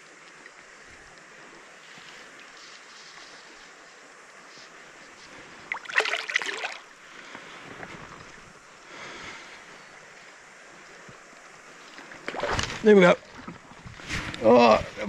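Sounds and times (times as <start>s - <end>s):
water splashing and sloshing: 5.1s - 8.6s, 11.0s - 14.4s.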